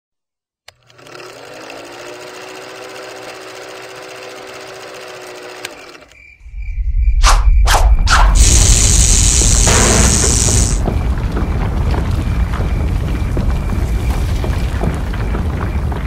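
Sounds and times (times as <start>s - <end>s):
film projector whirring and clattering: 0.7s - 6.2s
low rumble: 6.4s - 16.0s
quick whooshes: 7.1s - 8.5s.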